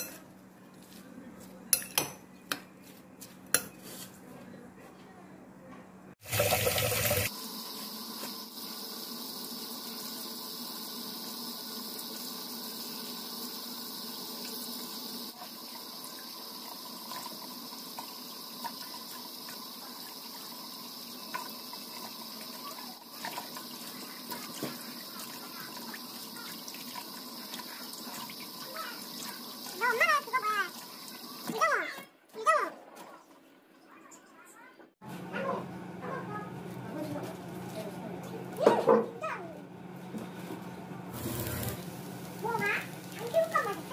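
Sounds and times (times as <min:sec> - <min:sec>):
tap water running into bowl: 0:06.2 - 0:07.3, 0:08.2 - 0:31.6
splashes of greens being rinsed: 0:41.2 - 0:43.9.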